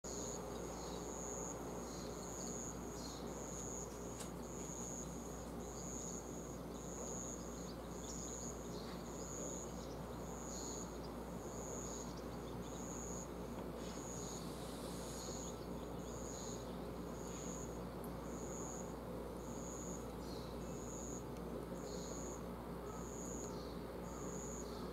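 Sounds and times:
insect chirping: 0.1s - 24.9s
low background hiss: 0.1s - 24.9s.

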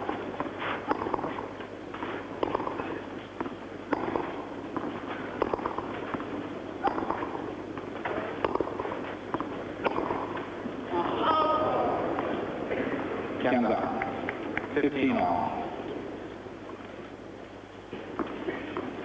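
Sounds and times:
racket striking tennis ball: 0.0s - 1.5s, 2.4s - 10.4s
tennis ball bouncing on clay: 0.1s - 10.5s.

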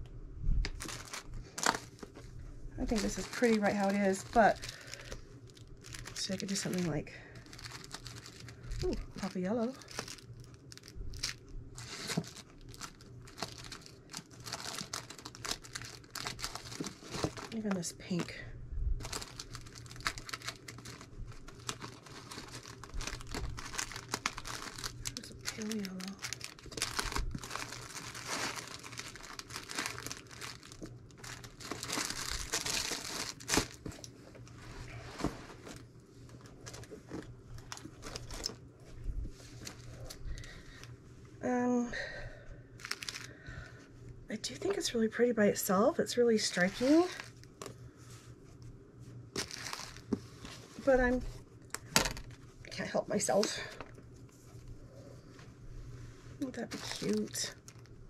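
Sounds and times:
crinkling and rustling: 0.6s - 18.4s, 19.0s - 41.0s, 42.8s - 43.3s, 46.5s - 55.6s, 56.4s - 58.0s.

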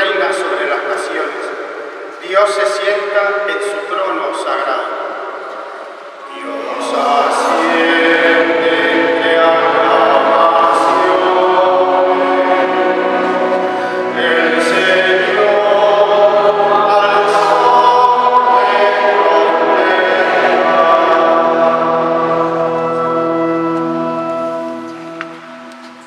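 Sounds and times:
man singing chant: 6.3s - 13.2s, 14.0s - 21.9s.

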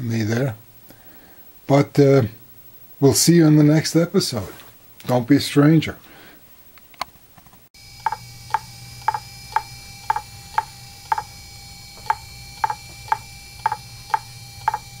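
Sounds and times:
steady hum: 7.8s - 15.0s
hard drive clicking: 8.0s - 15.0s.

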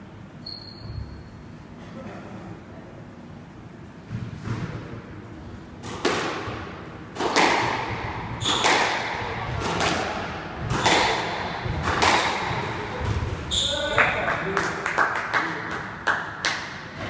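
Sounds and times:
squash ball hits echoing: 5.8s - 14.2s.

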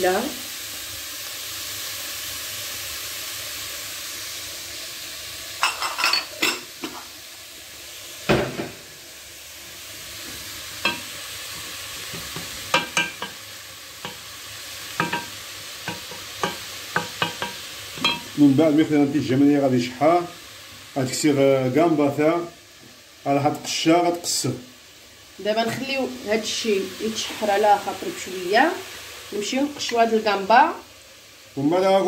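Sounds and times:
vegetables sizzling in oil: 0.0s - 32.0s
wooden spoon knocking against pot: 15.9s - 18.2s.

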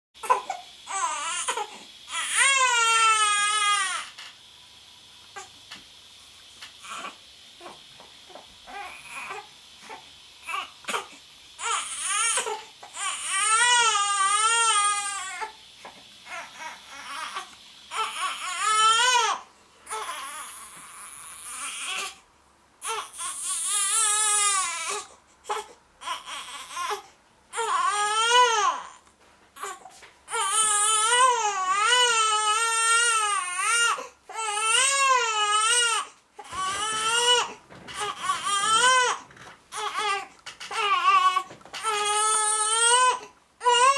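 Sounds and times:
newborn baby crying: 0.2s - 4.2s, 6.8s - 7.8s, 8.7s - 15.6s, 16.2s - 22.2s, 22.8s - 43.9s.

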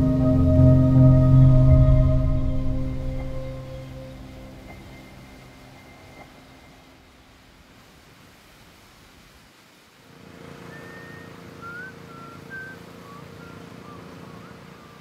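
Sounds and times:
engine-like hum: 0.0s - 6.8s, 10.1s - 15.0s
high whistled chirps: 0.0s - 6.9s, 10.6s - 15.0s.

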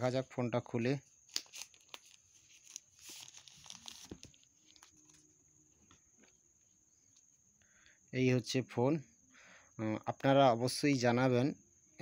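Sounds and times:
paper rustle: 1.3s - 5.2s.

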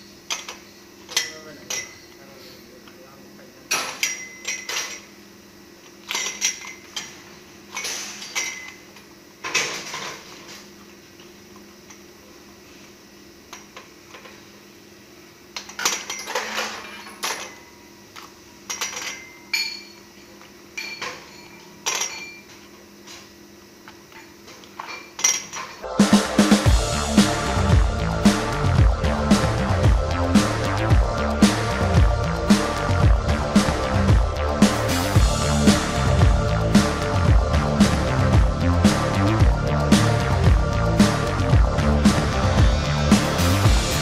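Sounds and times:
steady low hum: 17.6s - 44.0s.

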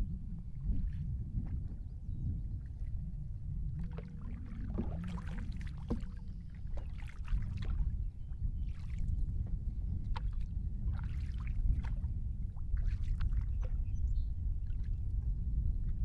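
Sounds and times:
steady low rumble: 0.0s - 16.0s
paddle splashing through water: 3.8s - 8.0s, 8.6s - 9.1s, 10.0s - 13.9s.

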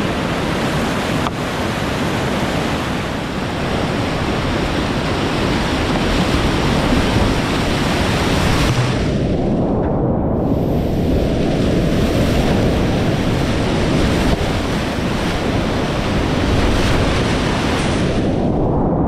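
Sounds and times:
whitewater rushing in creek: 0.0s - 9.2s
wind buffeting microphone: 0.0s - 19.0s.

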